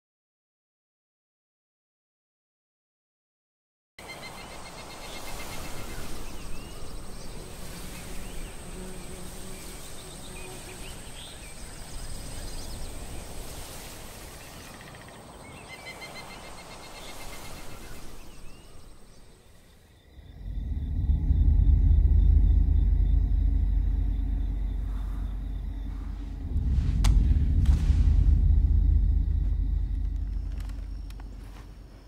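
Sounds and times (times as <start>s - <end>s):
insects trilling: 4.0s - 26.7s, 27.7s - 32.0s
birds chirping: 4.0s - 32.0s
low rumble: 20.1s - 32.0s.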